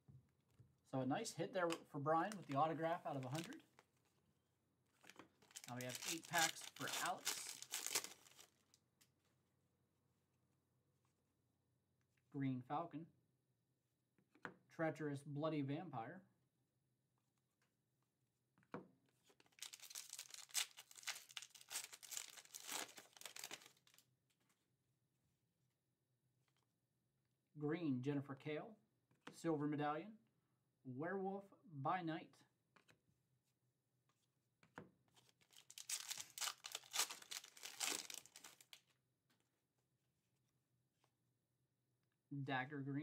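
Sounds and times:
foil wrapper crinkling: 2.3 - 3.6, 5.4 - 8.6, 19.5 - 24.0, 35.5 - 38.8.

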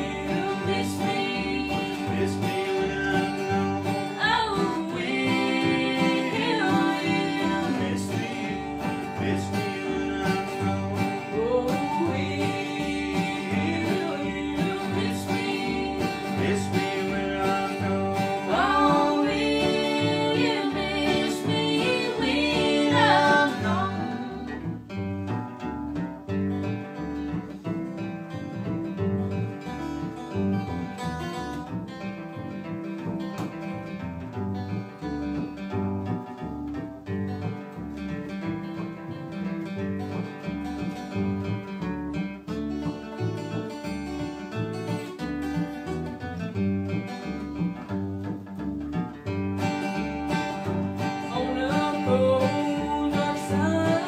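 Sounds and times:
person singing: 0.0 - 24.8, 50.6 - 54.0
acoustic guitar: 0.0 - 54.0
upright bass plucking: 0.0 - 54.0.

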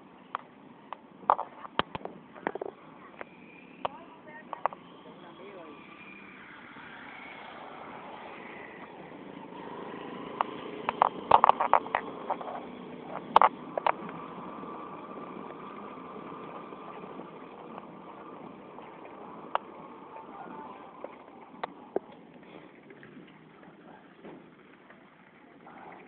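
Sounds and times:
street and wind noise: 0.0 - 26.0
sharp clicks and rattles: 0.3 - 4.9, 10.2 - 14.3
motorcycle engine running: 8.9 - 22.4.

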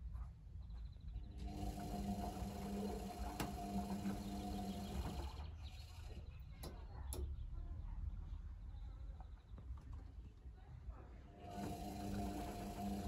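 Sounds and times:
washing machine drum humming: 1.2 - 7.4, 11.4 - 13.0.

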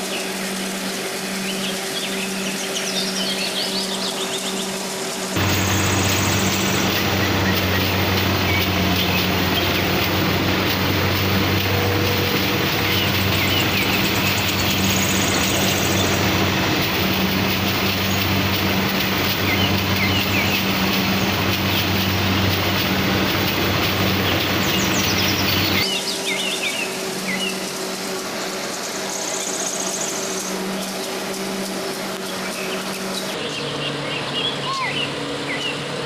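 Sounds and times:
harvester engine droning: 4.5 - 26.0.

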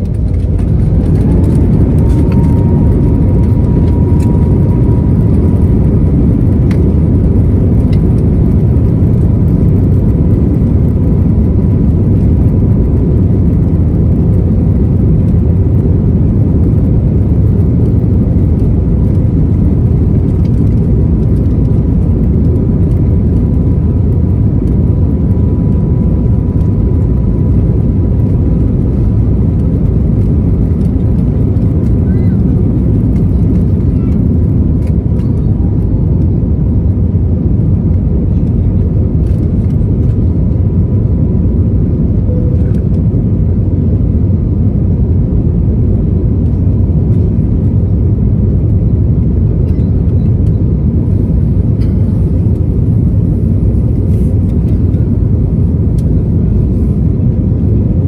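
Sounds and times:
airflow past fuselage: 0.0 - 10.0
faint steady whine: 0.0 - 58.0
jet engine rush in cabin: 0.0 - 58.0.

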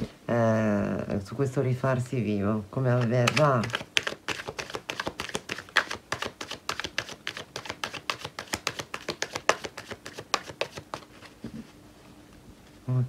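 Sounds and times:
cards being shuffled: 2.9 - 11.6.

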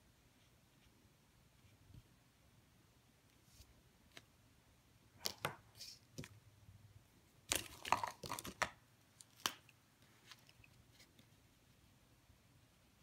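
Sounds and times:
rustles and scrapes on paper: 3.4 - 4.2.

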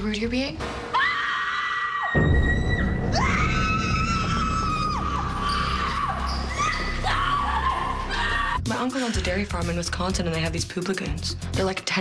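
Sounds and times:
women screaming: 0.9 - 8.6.

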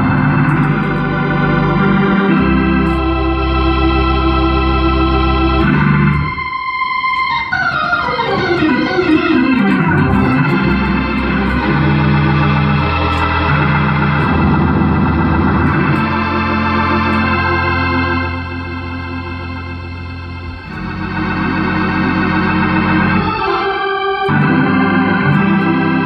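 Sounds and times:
organ playing gospel: 0.0 - 26.0.

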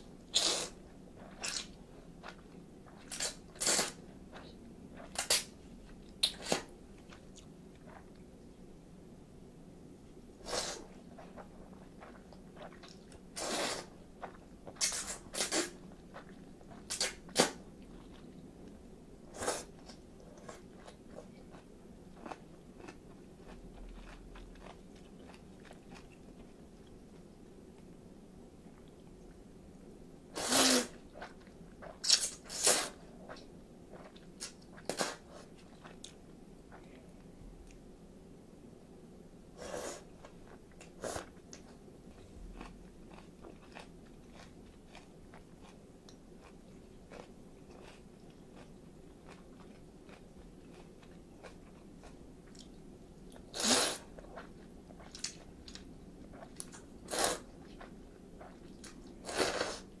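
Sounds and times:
soft chewing: 0.2 - 8.7, 10.2 - 28.0, 28.6 - 29.9, 30.9 - 37.9, 39.6 - 60.0
person slurping noodles: 10.4 - 10.8, 13.4 - 13.9, 30.4 - 31.0, 32.0 - 33.0, 53.5 - 54.0, 57.1 - 57.5, 59.2 - 59.9.

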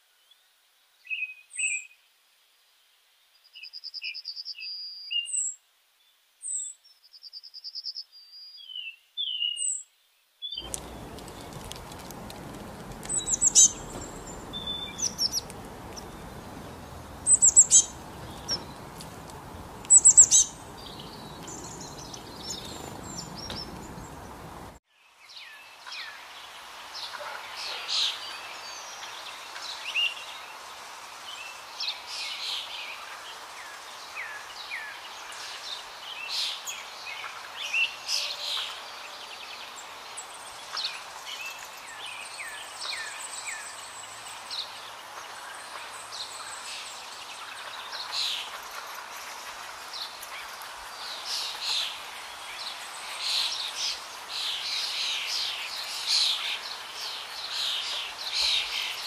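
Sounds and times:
songbirds chirping: 0.1 - 59.0
steady background hiss: 10.5 - 59.0
bird trills: 10.6 - 18.9, 19.8 - 24.5.

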